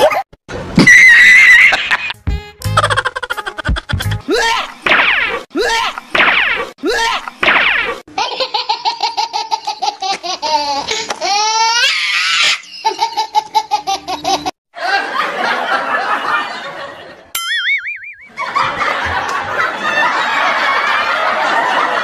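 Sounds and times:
person laughing: 1.6 - 4.8.

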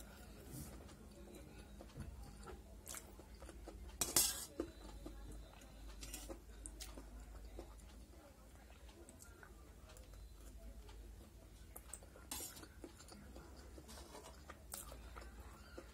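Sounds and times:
metal spoon scraping steel plate: 4.0 - 4.6, 12.3 - 12.6.

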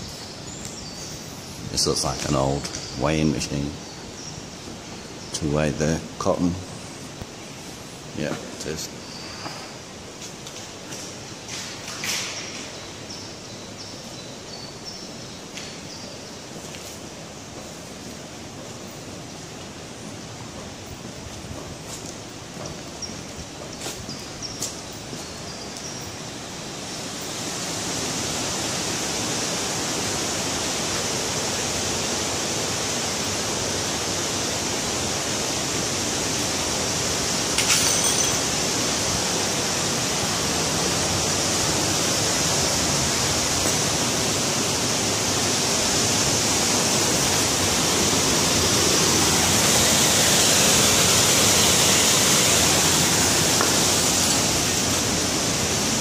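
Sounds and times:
waterfall rushing over rocks: 21.9 - 56.0.

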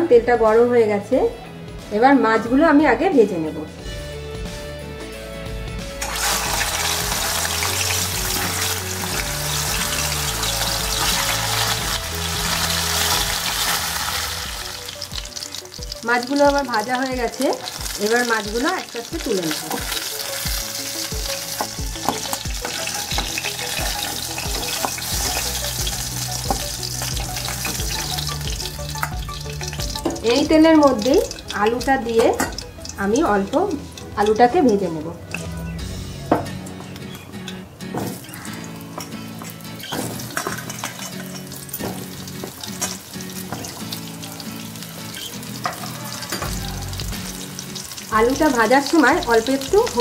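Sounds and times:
soft background music: 0.0 - 50.0
hot oil sizzling: 6.0 - 50.0.

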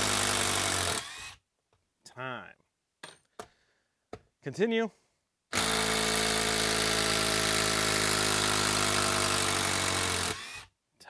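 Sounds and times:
impact driver hammering: 5.5 - 10.7.

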